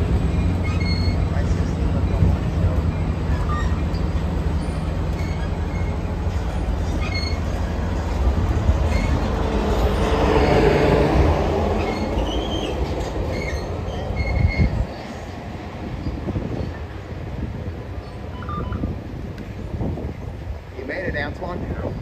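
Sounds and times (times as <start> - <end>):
high wheel squeals: 0.0 - 10.2, 11.6 - 15.3, 18.0 - 19.0
passenger train rumbling on rails: 0.0 - 22.0.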